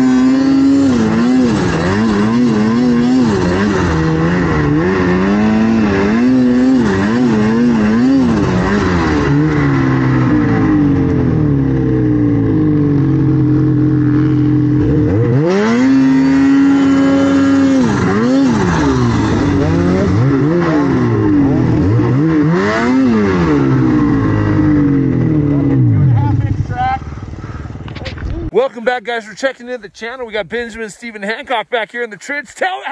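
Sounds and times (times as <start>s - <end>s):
snowmobile engine revving: 0.0s - 30.9s.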